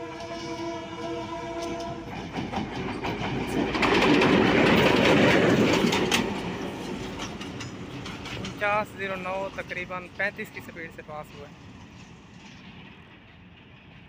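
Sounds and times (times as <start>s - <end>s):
locomotive horn: 0.0s - 2.2s
locomotive engine passing: 0.0s - 13.9s
wheels clicking over rail joints: 1.5s - 14.0s.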